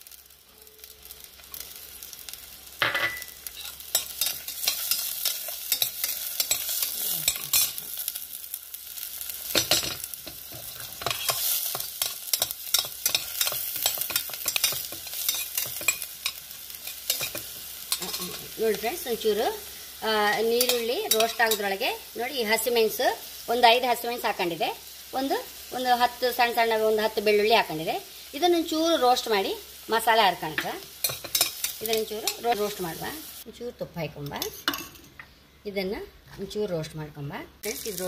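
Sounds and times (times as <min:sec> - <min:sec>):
onions sizzling in hot fat: 0:00.0 - 0:34.9, 0:36.5 - 0:38.0
steel spoon scraping a pan: 0:03.0 - 0:08.1, 0:09.5 - 0:18.8, 0:20.5 - 0:21.8, 0:31.0 - 0:32.6.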